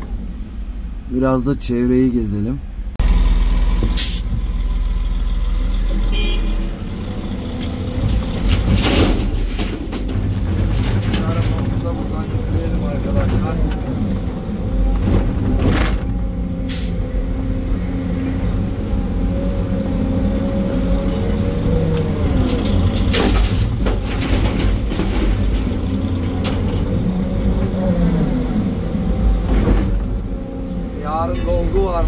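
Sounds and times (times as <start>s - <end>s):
excavator engine and hydraulics hum: 2.6s - 32.0s
rock crashing into truck bed: 8.0s - 11.8s, 22.5s - 26.7s
bucket clattering on rock: 22.4s - 26.8s.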